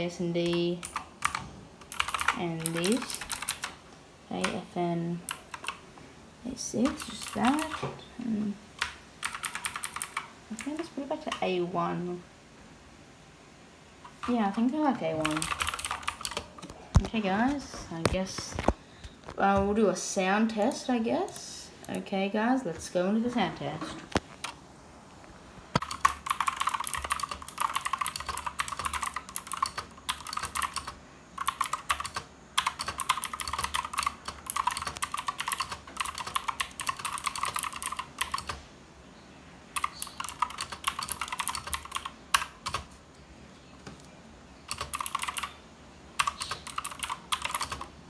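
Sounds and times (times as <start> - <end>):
mechanical keyboard typing: 0.4 - 3.8, 5.3 - 5.8, 6.8 - 7.9, 8.8 - 11.4, 14.1 - 17.2, 25.8 - 38.6, 39.8 - 43.0, 44.7 - 45.6, 46.2 - 47.9.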